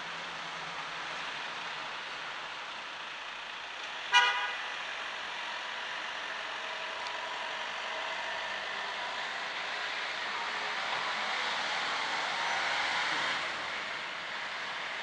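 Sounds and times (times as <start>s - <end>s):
car horn toot: 4.1s - 4.6s.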